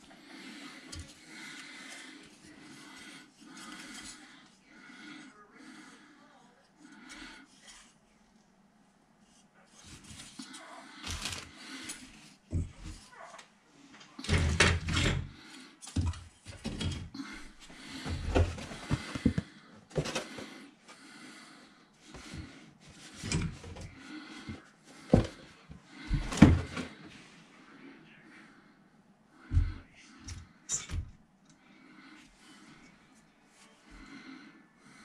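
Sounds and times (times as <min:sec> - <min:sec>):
plastic parts clattering: 0:11.0 - 0:12.1.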